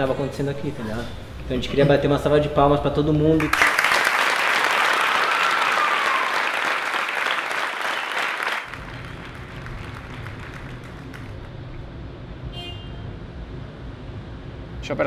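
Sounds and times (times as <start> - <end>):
crowd applauding: 3.4 - 11.7.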